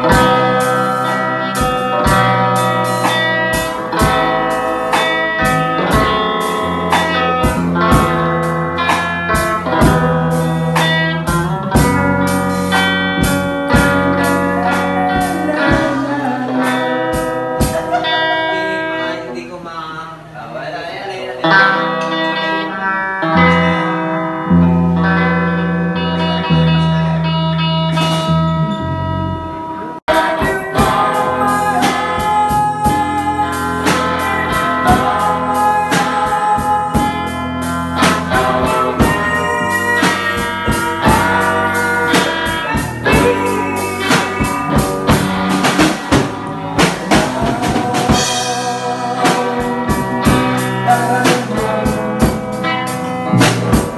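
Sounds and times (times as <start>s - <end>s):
low bass notes: 0.0s - 18.0s, 23.4s - 53.9s
drum kit beat: 0.0s - 19.2s, 30.1s - 53.9s
electric guitars: 0.0s - 19.6s, 21.0s - 53.9s.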